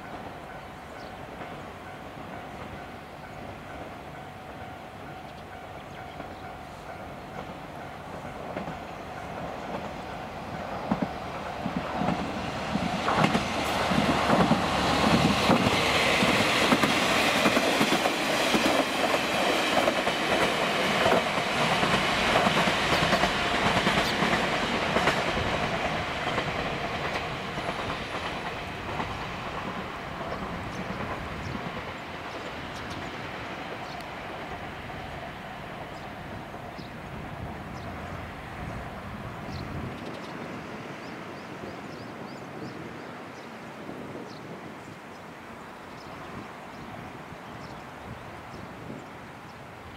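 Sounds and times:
train wheels clacking over rail joints: 0:06.0 - 0:33.2.

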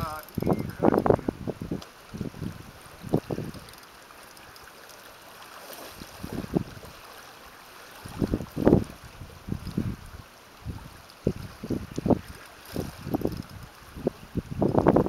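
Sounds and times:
people talking: 0:00.0 - 0:01.0
wind hiss on microphone: 0:00.0 - 0:04.8, 0:05.5 - 0:15.0
small waves lapping: 0:01.7 - 0:14.5.

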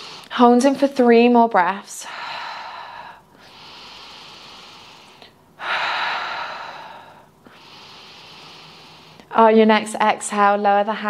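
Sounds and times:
woman breathing deeply: 0:00.0 - 0:00.4, 0:01.9 - 0:09.3.

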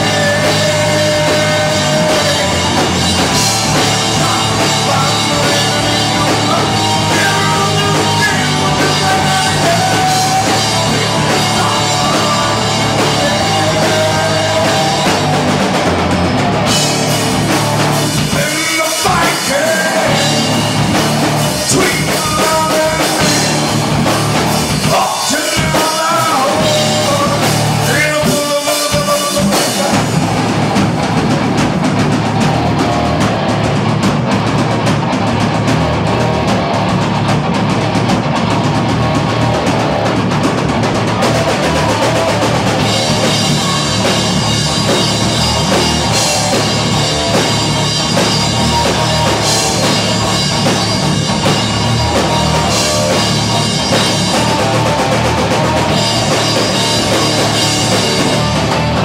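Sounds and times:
person singing: 0:00.0 - 0:15.5, 0:18.1 - 0:20.8, 0:21.4 - 0:30.1, 0:51.4 - 0:59.0
drum kit: 0:00.0 - 0:59.0
electric guitars: 0:00.0 - 0:59.0.

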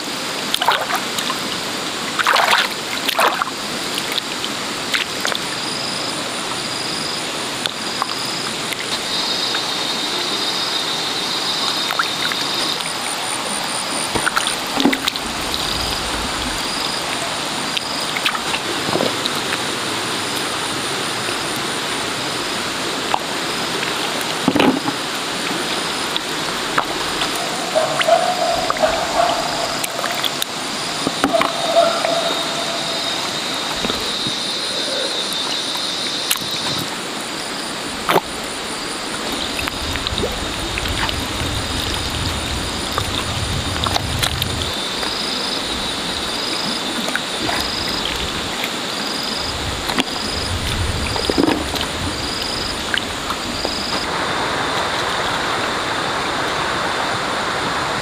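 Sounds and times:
hands squelching through mud and water: 0:00.4 - 0:05.6, 0:11.8 - 0:19.7, 0:23.0 - 0:32.4, 0:46.3 - 0:54.1.

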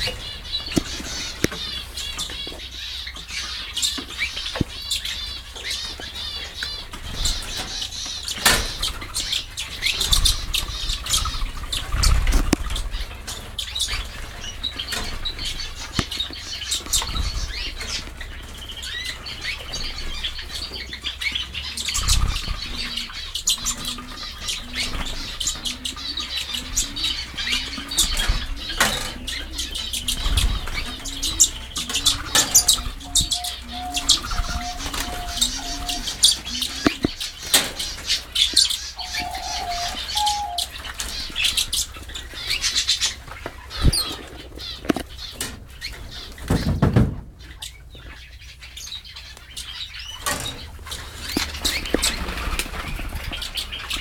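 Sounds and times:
finches chirping: 0:00.0 - 0:46.6
fluttering wingbeats: 0:50.2 - 0:54.0.

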